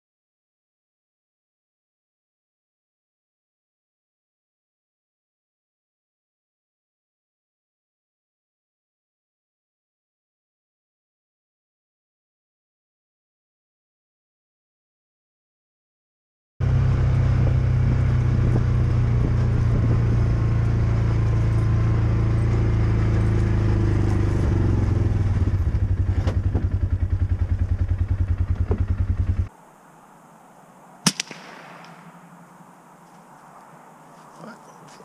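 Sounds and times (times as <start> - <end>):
loud low drone: 16.6 - 29.5
suppressed rifle shot: 31.0 - 32.5.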